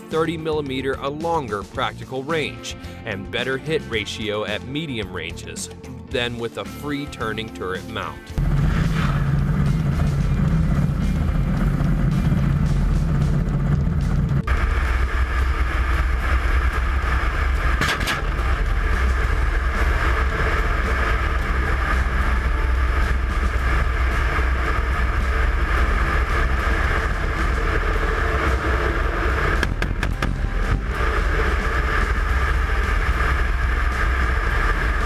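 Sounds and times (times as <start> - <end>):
helicopter rotors and engines rumbling: 0.0 - 35.0
air rushing over microphone: 8.4 - 35.0
brief crackle: 17.6 - 19.3.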